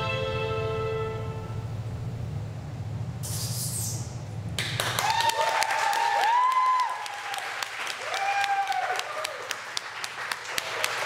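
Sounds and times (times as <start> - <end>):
music: 0.0 - 2.2
audience applause: 4.6 - 11.0
whooping cheers: 4.8 - 9.7.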